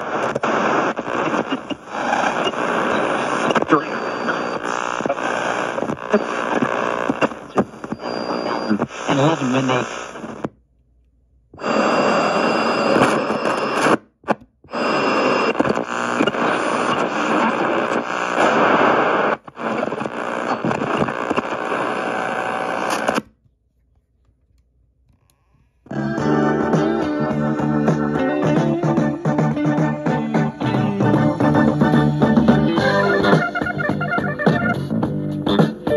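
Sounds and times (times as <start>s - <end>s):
radio static hiss: 0.0s - 10.5s, 11.6s - 14.0s, 14.7s - 23.2s
music with guitar and organ: 26.0s - 35.9s.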